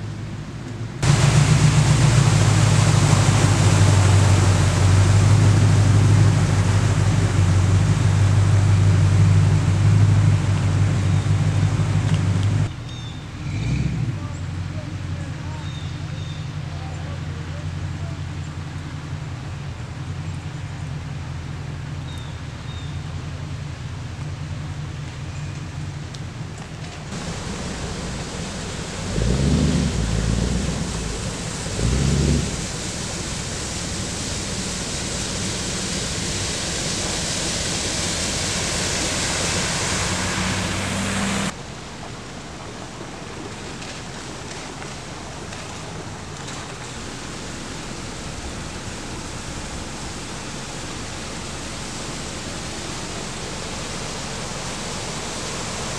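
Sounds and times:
low rumbles: 0.0s - 55.9s
tyres hissing through floodwater: 1.0s - 12.7s, 27.0s - 55.9s.

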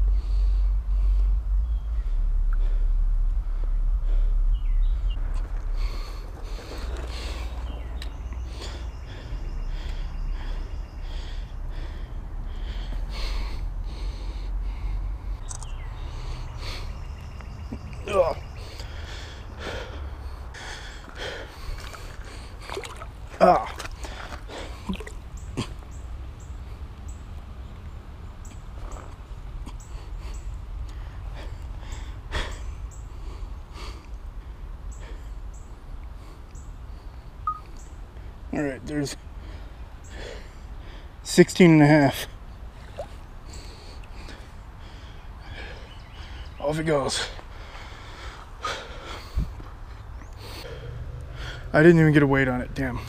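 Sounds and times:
person breathing hard through nose: 0.0s - 17.8s, 18.4s - 23.1s, 29.7s - 37.4s, 39.2s - 41.2s, 42.7s - 46.6s, 47.2s - 51.7s
wind rumbling on microphone: 0.0s - 28.5s, 49.1s - 50.2s
sharp click: 15.4s - 15.8s
short high chirps: 37.4s - 37.7s.

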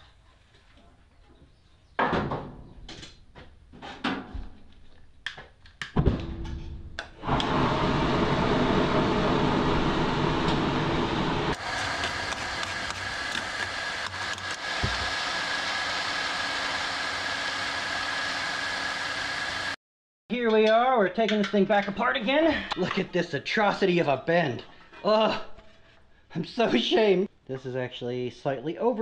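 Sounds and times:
blower fan rushing air: 7.2s - 19.8s
blower whine: 7.2s - 19.8s.

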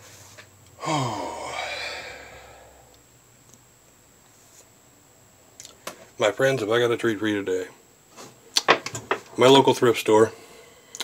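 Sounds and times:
person sighing: 0.8s - 3.0s.

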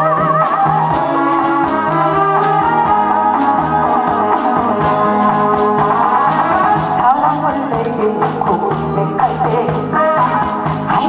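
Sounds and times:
bass beat: 0.0s - 11.0s
guitar-like melody: 0.0s - 11.0s
person singing: 2.5s - 11.0s.

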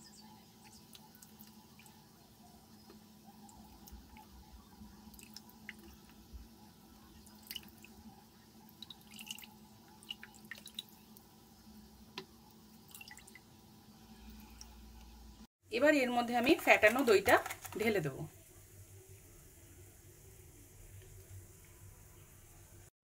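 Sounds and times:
water dripping: 0.0s - 2.1s, 2.8s - 11.4s, 12.1s - 13.5s.

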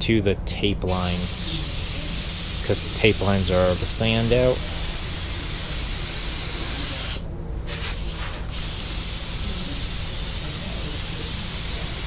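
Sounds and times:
spray gun hissing: 1.0s - 7.2s, 8.0s - 12.0s.

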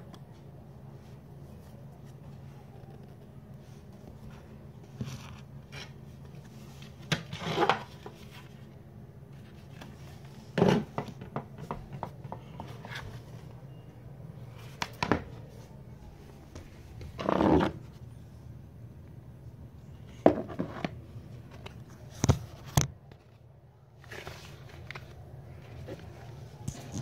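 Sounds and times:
steady low hum: 0.0s - 27.0s
toys knocking and rustling: 10.5s - 13.1s.

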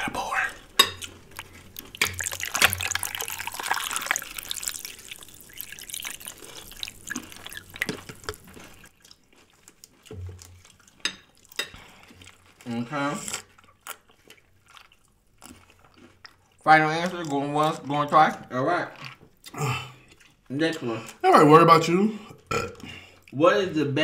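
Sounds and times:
drips and small clicks: 1.4s - 8.5s
liquid pouring into glass: 1.9s - 8.8s.

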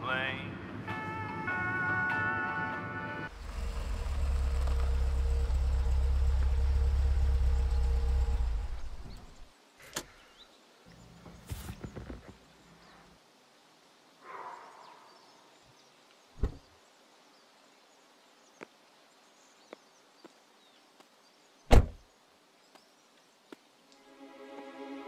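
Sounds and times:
dull thump: 16.4s - 16.6s, 21.7s - 22.0s
car door slamming shut: 21.7s - 22.0s.

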